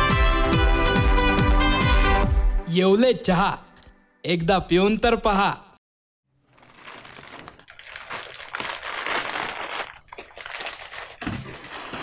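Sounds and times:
plastic packets rustling: 6.3 - 12.0.

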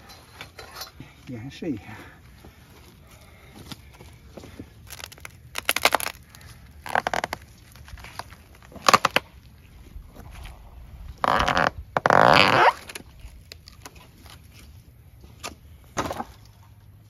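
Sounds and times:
pole crunching through charred debris: 3.6 - 9.2.

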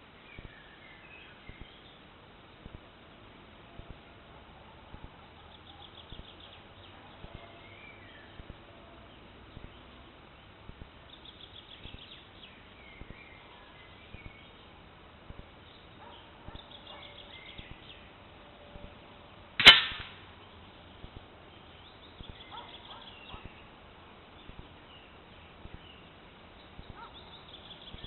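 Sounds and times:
birds chirping faintly: 0.0 - 19.6, 20.2 - 28.0
air rifle shot: 19.6 - 20.3.

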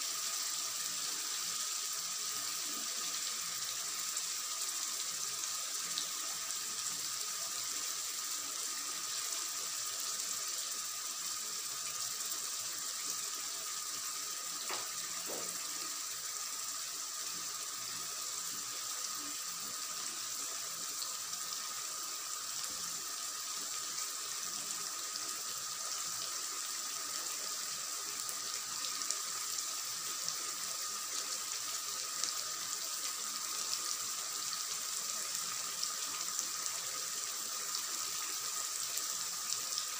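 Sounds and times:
curry sizzling and bubbling: 0.0 - 39.9.

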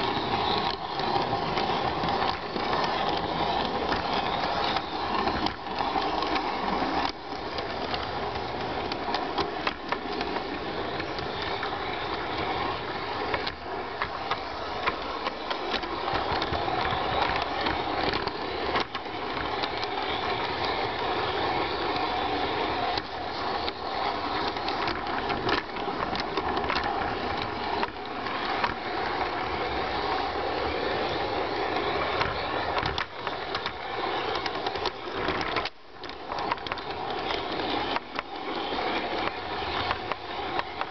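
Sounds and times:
model train motor whirring: 0.0 - 40.9
wheels clicking over rail joints: 0.0 - 40.9.

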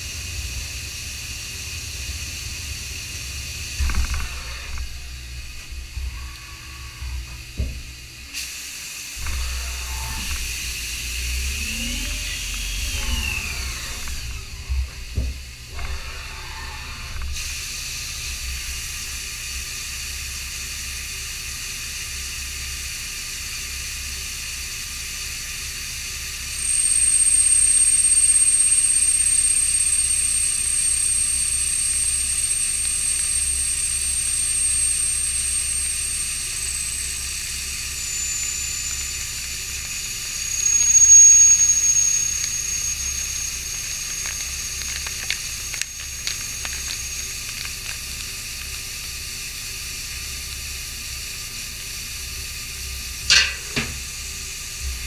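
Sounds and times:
high thin cutting whine: 3.5 - 18.8, 26.2 - 55.0
coolant spraying hiss: 8.3 - 14.2, 34.6 - 54.7
low machine hum: 9.0 - 20.4, 25.6 - 55.0.

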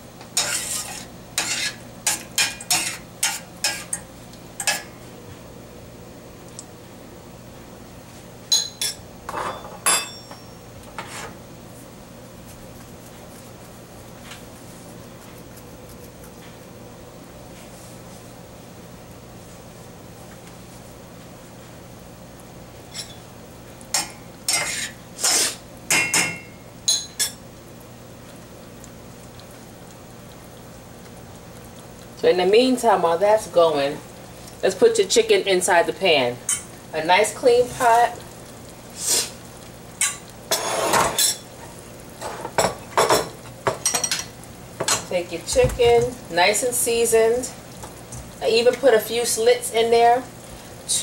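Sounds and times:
spoon scraping a saucepan: 0.4 - 4.0, 24.5 - 25.6, 40.5 - 41.4
metal spoon clinking on saucepan: 8.5 - 9.0.

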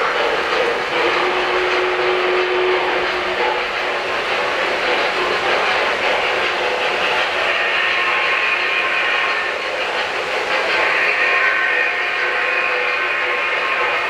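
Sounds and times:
model train wheels clattering on rail: 0.0 - 14.0.

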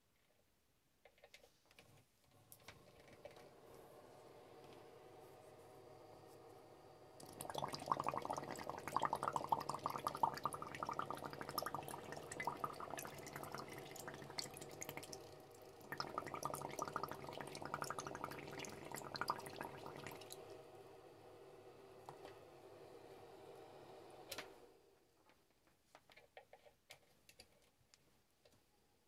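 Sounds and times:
air bubbling through water: 7.2 - 20.4.

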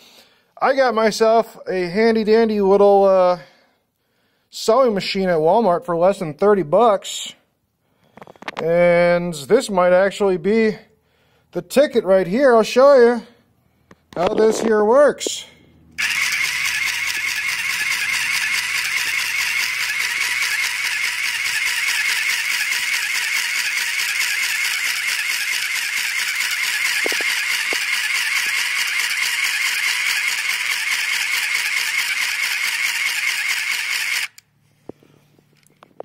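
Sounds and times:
sewing machine rattling: 16.0 - 34.4.

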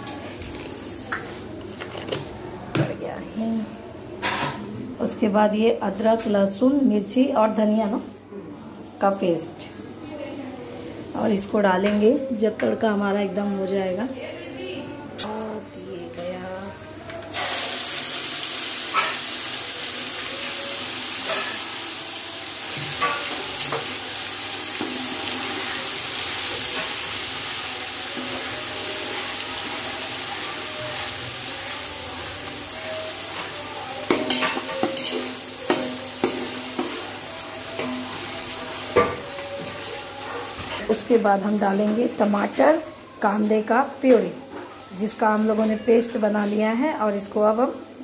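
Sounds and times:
paste sizzling in hot oil: 17.3 - 40.2.

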